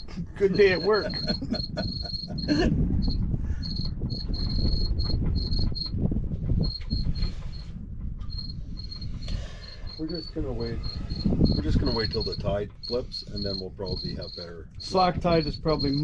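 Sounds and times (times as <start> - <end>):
high-pitched electronic beeping: 0.0 - 6.0, 6.6 - 7.7, 8.3 - 16.0
low rumble: 0.0 - 16.0.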